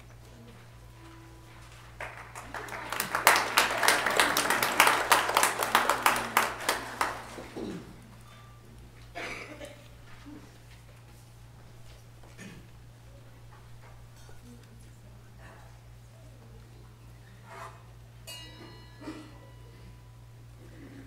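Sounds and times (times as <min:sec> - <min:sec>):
congregation applauding: 0:01.7 - 0:07.8.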